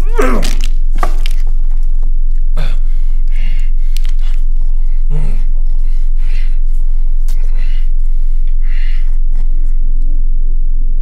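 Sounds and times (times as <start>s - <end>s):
loud low hum: 0.0s - 11.0s
man gasping and sighing: 2.5s - 9.9s.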